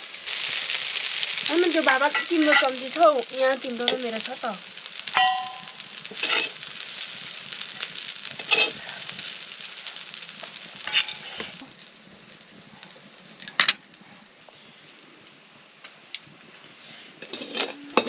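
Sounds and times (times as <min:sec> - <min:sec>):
rice sizzling in a pan: 0:00.0 - 0:18.0
metal spoon scraping a pan: 0:01.8 - 0:02.8, 0:05.2 - 0:06.6, 0:08.4 - 0:08.8, 0:10.8 - 0:11.6, 0:17.2 - 0:18.0.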